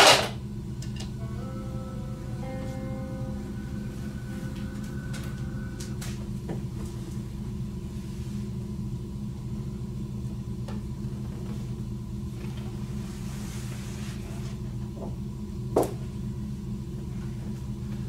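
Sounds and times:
low rumbling drone: 0:00.4 - 0:11.2
held musical note: 0:00.9 - 0:07.8.

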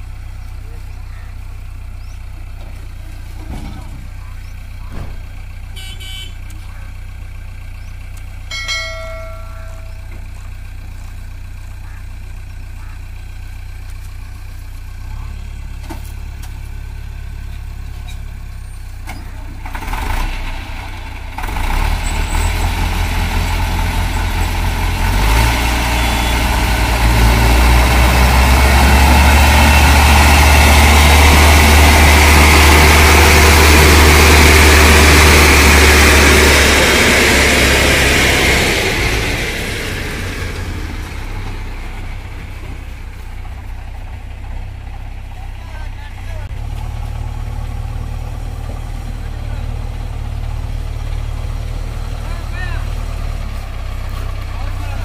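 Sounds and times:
diesel engines revving under strain: 0:00.0 - 0:55.0.

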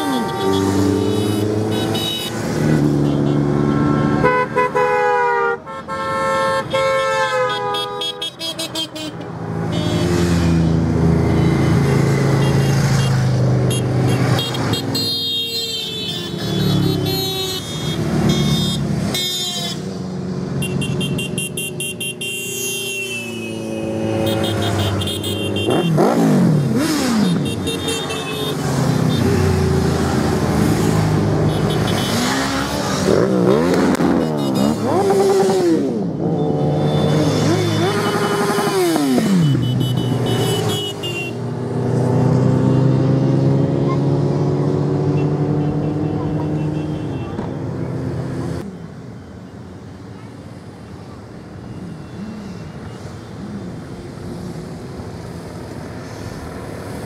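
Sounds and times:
motorcycle horns: 0:00.0 - 0:10.6, 0:11.3 - 0:29.8, 0:30.7 - 0:41.5, 0:45.0 - 0:47.6
engine revving: 0:25.6 - 0:27.6, 0:28.6 - 0:40.7.

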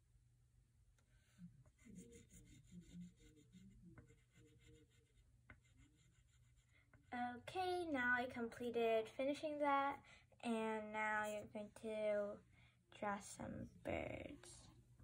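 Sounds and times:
oil pastel scratching on paper: 0:01.2 - 0:07.1.

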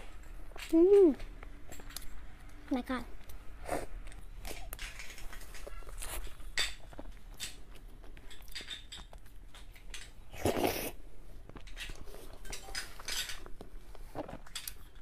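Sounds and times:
wet mouth sounds: 0:10.3 - 0:11.0.

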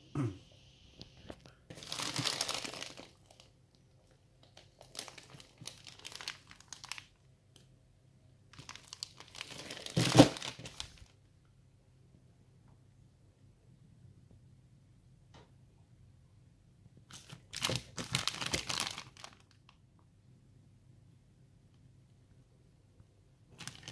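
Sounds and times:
plastic bag crinkling: 0:01.7 - 0:03.5, 0:04.4 - 0:07.2, 0:08.5 - 0:11.1, 0:17.1 - 0:19.7, 0:23.6 - 0:23.9.

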